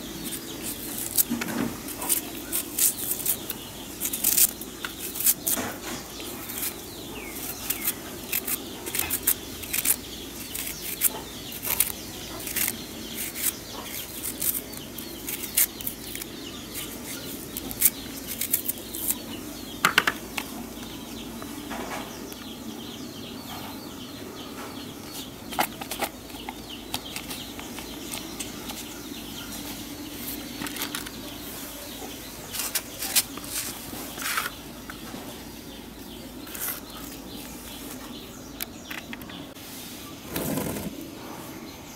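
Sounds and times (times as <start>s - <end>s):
knife cutting onion: 0.1s - 19.2s.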